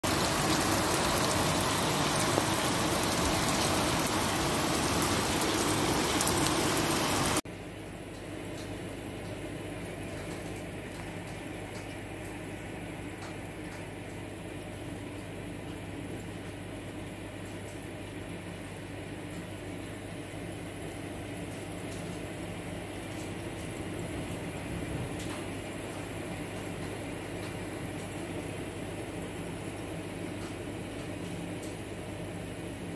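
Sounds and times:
rain hissing: 0.0 - 7.4.

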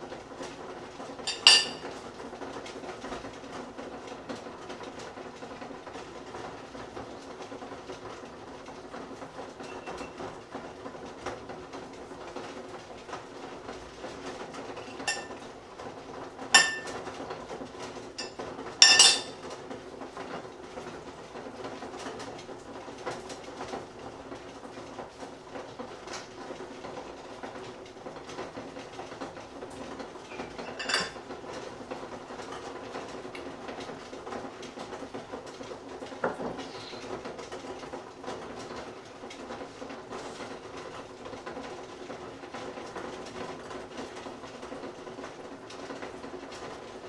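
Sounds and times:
cutlery clinking on plates: 1.3 - 1.9, 14.9 - 15.4, 16.6 - 17.0, 18.2 - 19.4, 30.4 - 31.2.

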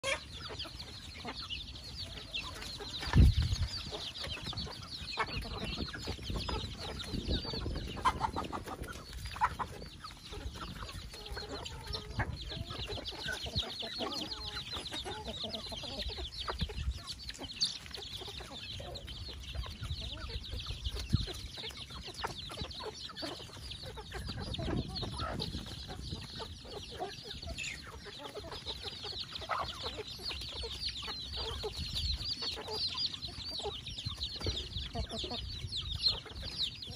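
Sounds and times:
chicks peeping: 0.0 - 36.9
hens clucking: 0.0 - 36.9.

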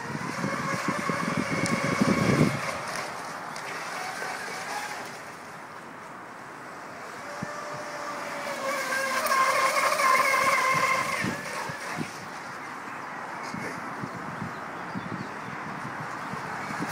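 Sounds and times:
wind rumbling on microphone: 0.0 - 5.2, 6.9 - 16.9
electric motor whine: 0.0 - 5.3, 7.0 - 12.5.

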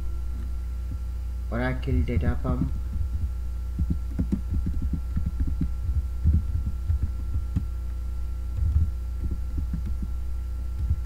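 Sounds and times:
steady low hum: 0.0 - 11.0
muffled keyboard keystrokes: 2.6 - 7.7, 8.5 - 10.2.

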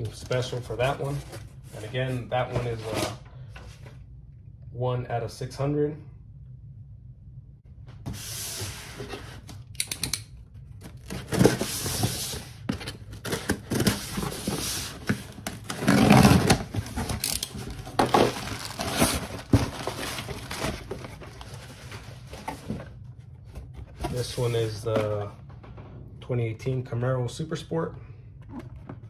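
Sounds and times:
packing tape tearing: 13.2 - 21.5.

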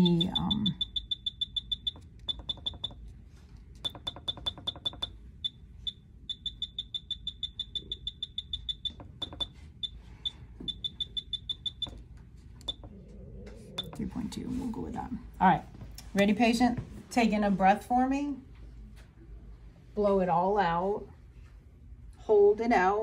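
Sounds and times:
rapid high beeps: 0.0 - 3.0, 3.8 - 12.0.

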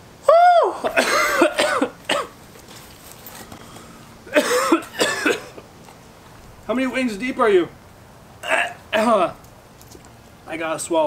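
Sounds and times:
man coughing and huffing: 0.8 - 2.4, 4.2 - 5.7, 8.4 - 9.3.

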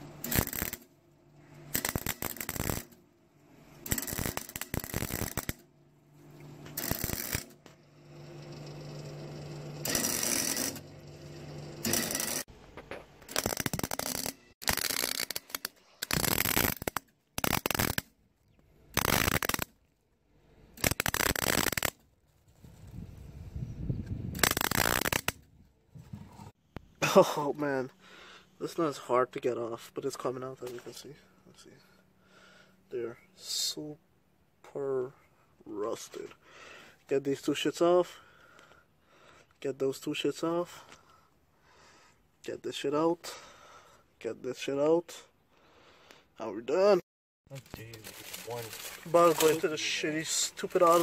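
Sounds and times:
welder humming low: 0.0 - 14.9
welding arc crackling: 0.2 - 0.9, 1.7 - 3.0, 3.8 - 5.6, 6.7 - 7.6, 9.8 - 10.8, 11.8 - 12.5, 13.3 - 18.1, 18.9 - 19.7, 20.8 - 22.0, 24.4 - 25.4, 47.6 - 51.0.

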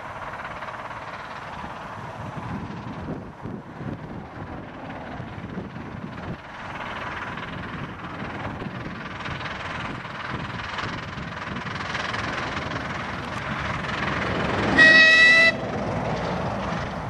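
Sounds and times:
steam locomotive running: 0.0 - 17.0.

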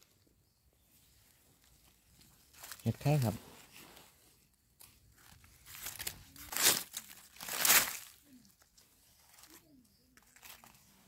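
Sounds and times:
dry leaves crackling and rustling: 1.6 - 3.3, 4.8 - 11.0.

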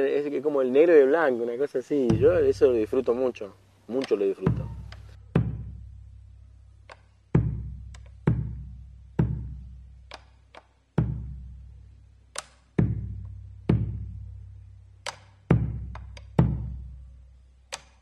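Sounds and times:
deep drum strikes: 2.1 - 3.3, 4.4 - 6.0, 7.4 - 9.6, 11.0 - 11.5, 12.8 - 14.2, 15.5 - 16.8
stick clicks on wooden rim: 3.9 - 5.1, 6.8 - 7.2, 10.0 - 10.8, 12.3 - 12.8, 15.0 - 16.4, 17.7 - 18.0.

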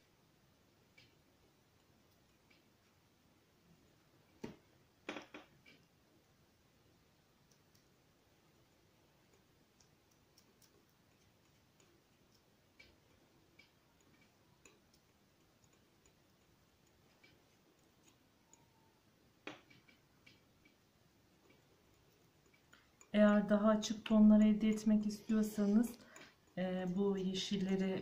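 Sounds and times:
palette knife ticking on paper: 9.3 - 18.8.

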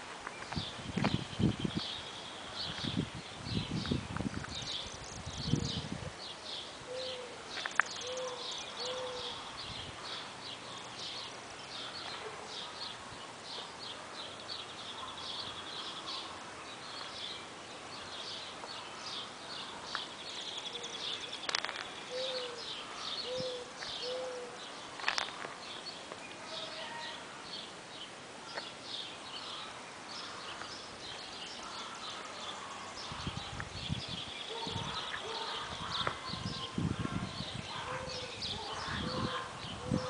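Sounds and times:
small birds chirping: 0.2 - 40.0
low hooting bird notes: 22.0 - 24.6.

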